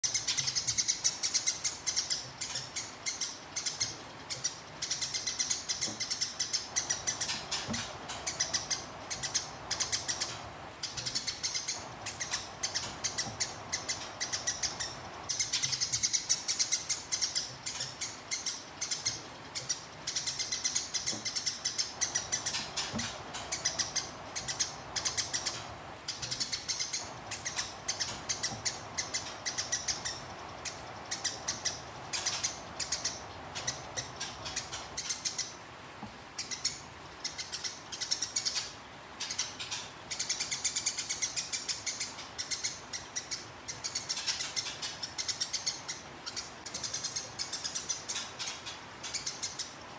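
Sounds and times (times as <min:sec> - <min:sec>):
sparrow harsh chirping chatter: 0:00.0 - 0:35.5.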